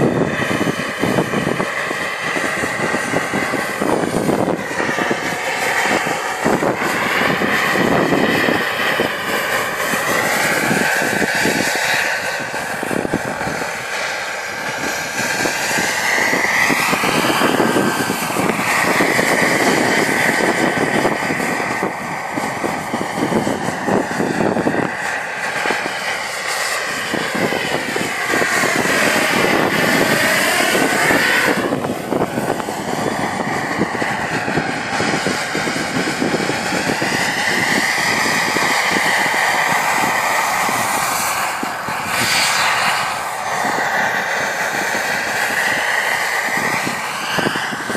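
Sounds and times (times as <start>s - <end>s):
helicopter rotor chopping: 0.0s - 47.9s
model turbine whining: 0.0s - 47.9s.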